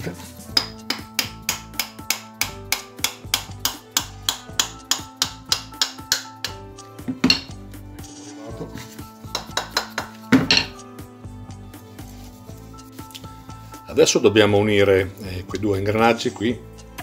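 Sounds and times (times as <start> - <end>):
background music: 0.0 - 17.0
hammer tapping on metal: 0.6 - 6.6, 9.3 - 10.7.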